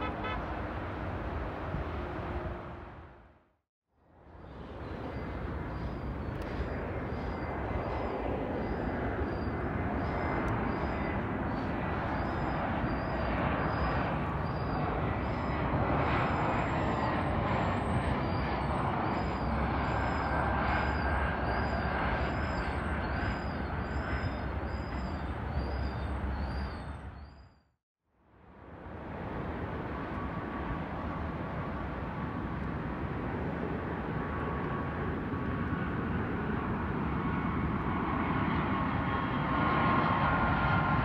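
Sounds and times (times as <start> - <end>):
jet airliner passing overhead: 0.0 - 3.4, 4.1 - 27.4, 28.6 - 41.0
jet engine whine falling in pitch: 4.4 - 27.5.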